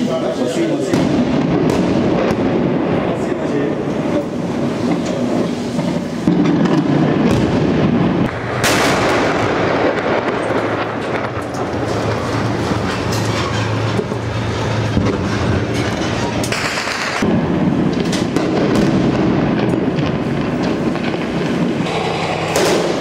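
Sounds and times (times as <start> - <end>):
steady mechanical drone: 0.0 - 23.0
artillery bombardment rumble: 0.1 - 23.0
sharp blast: 0.9 - 12.5, 16.4 - 23.0.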